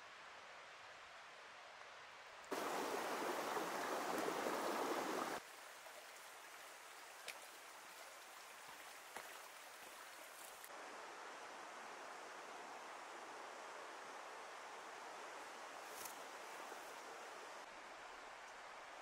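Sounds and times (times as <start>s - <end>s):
river running over stones: 2.5s - 17.5s.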